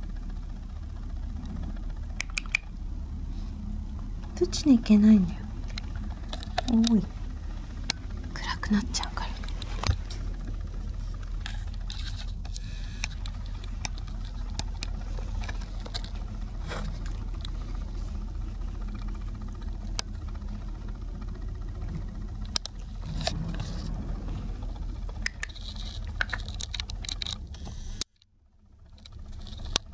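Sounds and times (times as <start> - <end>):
steady low hum: 0.0 - 29.9.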